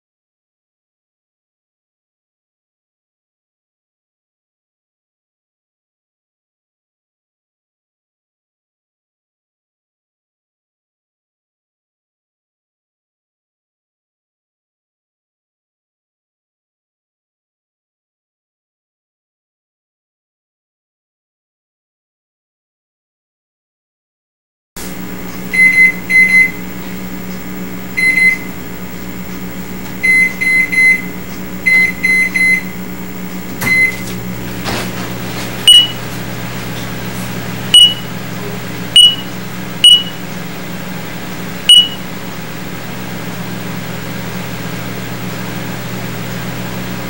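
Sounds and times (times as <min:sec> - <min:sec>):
microwave oven humming: 0:24.8 - 0:47.0
radar detector beeps: 0:25.5 - 0:26.6, 0:28.0 - 0:28.5, 0:30.0 - 0:32.8, 0:33.6 - 0:34.0, 0:35.6 - 0:36.0, 0:37.7 - 0:38.2, 0:39.0 - 0:40.2, 0:41.7 - 0:42.0
short electronic beeps: 0:25.5 - 0:26.6, 0:28.0 - 0:28.5, 0:30.0 - 0:32.8, 0:33.6 - 0:34.0, 0:35.7 - 0:36.0, 0:37.7 - 0:38.1, 0:39.0 - 0:40.2, 0:41.7 - 0:42.0.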